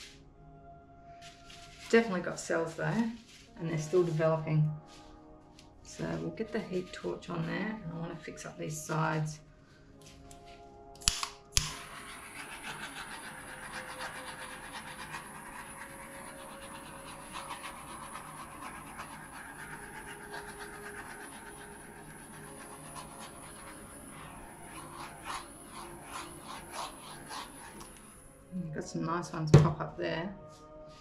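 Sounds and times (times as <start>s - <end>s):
torch igniter click: 11.0s - 11.8s.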